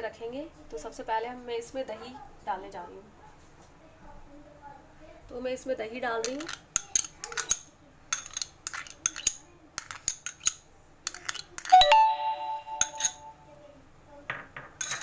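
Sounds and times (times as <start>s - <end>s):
spoon scraping glass bowl: 8.2s - 11.8s, 12.8s - 13.3s
glass bowl ringing: 11.6s - 13.5s.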